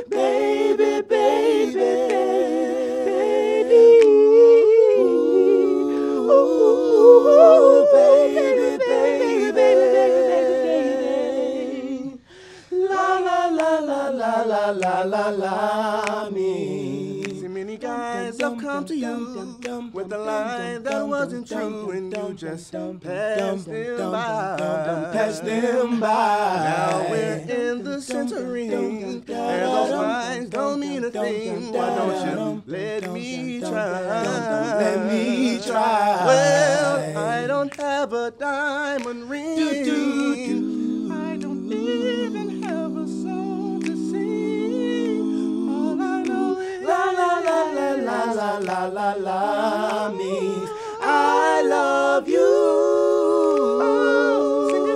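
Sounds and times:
male vocal quartet singing a cappella: 0:00.0 - 0:54.9.

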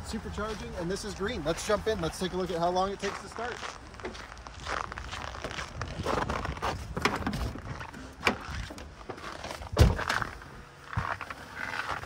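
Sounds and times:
small knocks and rustles: 0:05.4 - 0:12.0
car door slammed shut: 0:09.7 - 0:10.3.

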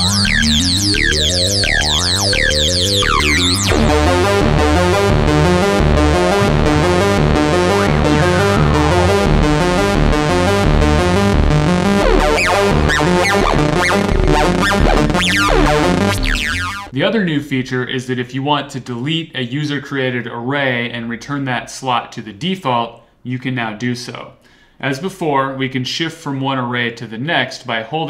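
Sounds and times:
deep synth bass: 0:00.0 - 0:16.9
stepping synth tones: 0:00.0 - 0:16.9
gliding synth pitches: 0:01.7 - 0:16.9.

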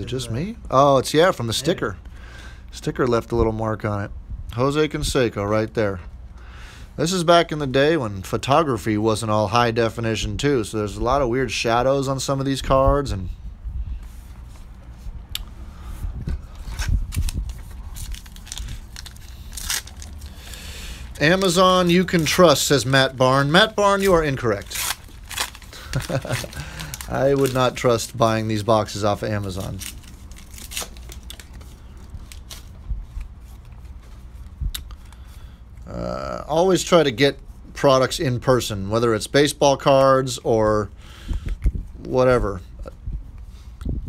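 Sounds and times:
low steady hum: 0:00.0 - 0:44.0
card packs rustling and crinkling: 0:16.4 - 0:35.3.

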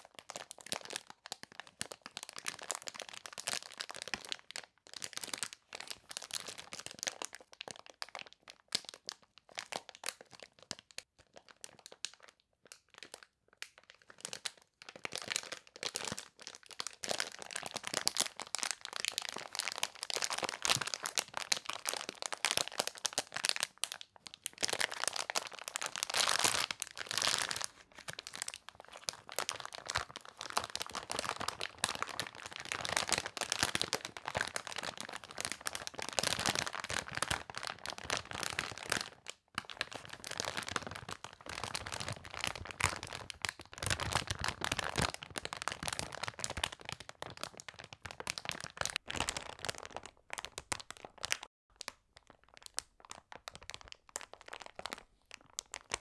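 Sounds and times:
plastic bags crinkling: 0:15.1 - 0:51.5.

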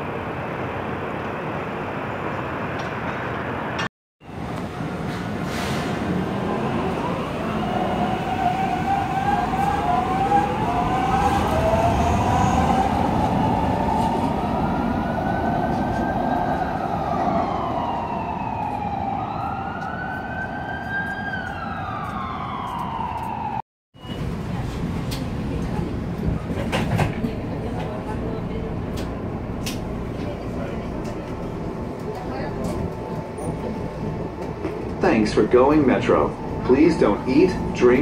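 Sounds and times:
light rail train rumbling: 0:00.0 - 0:19.9, 0:22.5 - 0:38.0
emergency siren wailing: 0:06.1 - 0:23.6, 0:32.3 - 0:38.0.

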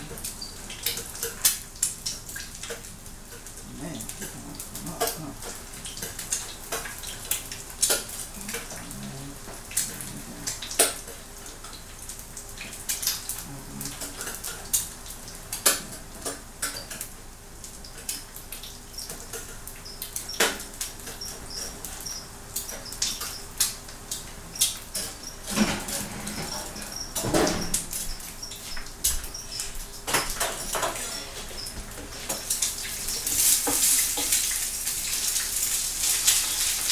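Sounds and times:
faint sizzle of frying: 0:00.0 - 0:36.9
utensils clattering on frying pan: 0:24.7 - 0:36.9.

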